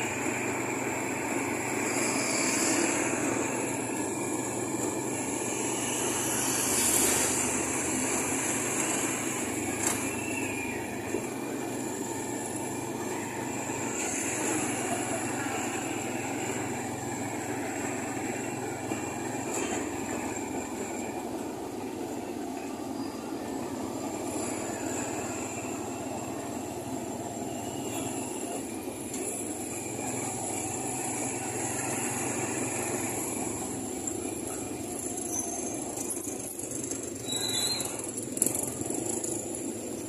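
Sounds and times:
vehicle road and engine noise: 0.0 - 40.0
passing motorcycles: 0.1 - 12.4.

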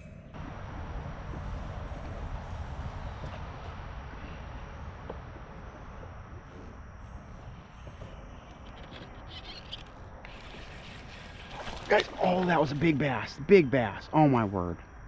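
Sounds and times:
wind rumble on microphone: 0.0 - 11.9
insects chirring: 0.0 - 15.0.

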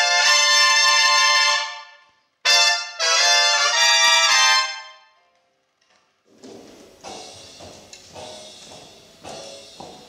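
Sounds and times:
big band brass and drum hits: 0.0 - 4.9.

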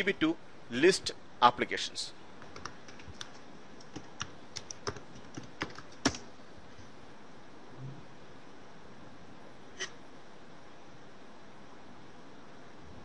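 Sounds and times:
keyboard typing: 2.4 - 6.2.

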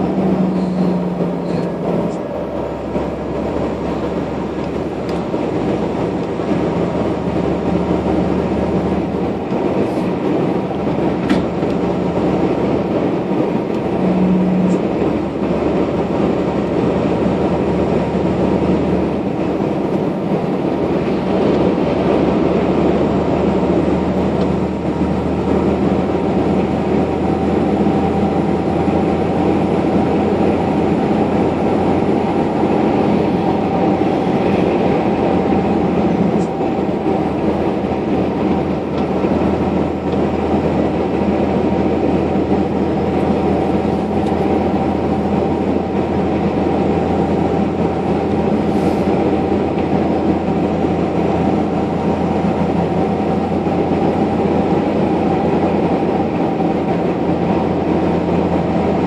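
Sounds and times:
vehicle engine and tyre drone: 0.0 - 59.0.

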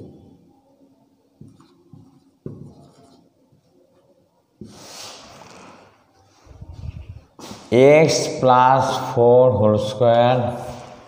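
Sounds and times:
marker pen writing on whiteboard: 1.4 - 6.0.

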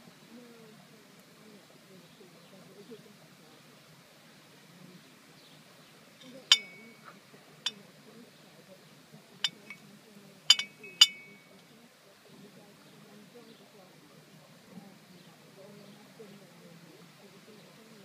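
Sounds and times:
crockery clinking: 6.2 - 7.8, 9.4 - 9.8, 10.5 - 11.5.

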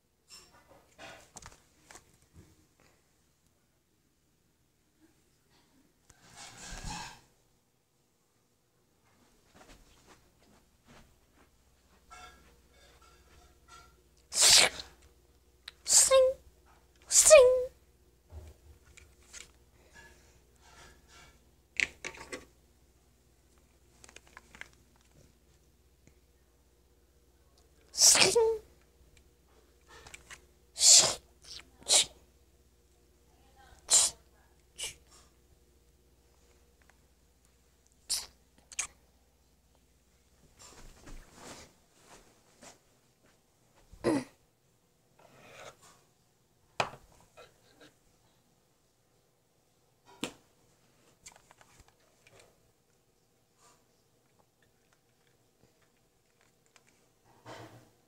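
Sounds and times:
soft rustles: 9.0 - 13.8, 40.2 - 44.0.

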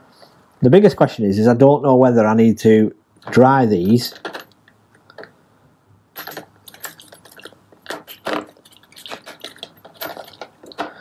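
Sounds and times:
metal parts clinking in plastic tub: 3.8 - 4.6, 6.2 - 11.0.

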